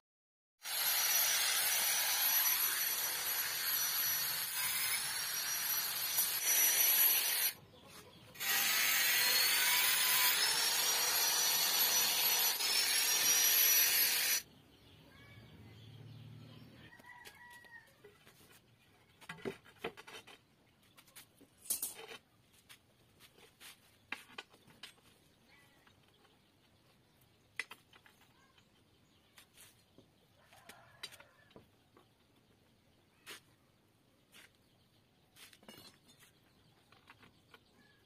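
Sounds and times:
steel bars clinking and knocking: 21.6 - 22.2.

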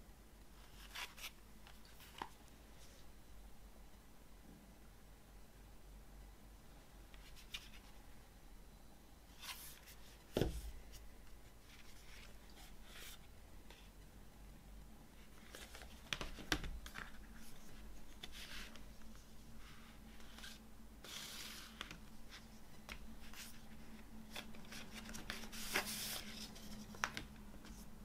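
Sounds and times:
paper and card rustling: 15.3 - 27.8.

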